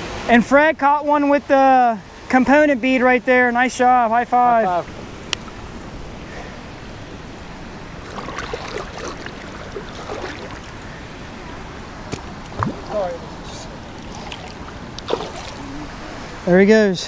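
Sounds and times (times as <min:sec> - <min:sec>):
steady water wash: 0:00.0 - 0:17.0
water sloshing and splashing: 0:07.0 - 0:16.4.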